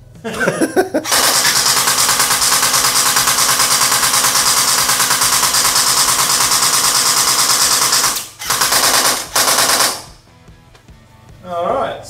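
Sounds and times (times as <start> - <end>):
gel blaster firing full auto: 1.1 - 10.2.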